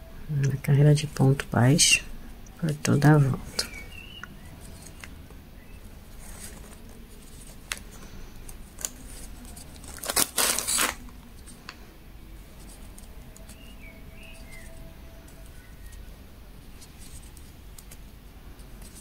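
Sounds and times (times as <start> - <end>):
fabric rustling: 5.7 - 11.6.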